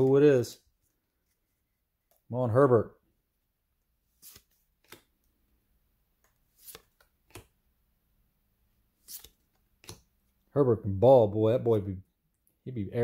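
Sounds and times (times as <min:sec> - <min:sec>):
cards sliding off stack: 0:04.1 - 0:05.1, 0:06.3 - 0:07.6, 0:09.0 - 0:10.1.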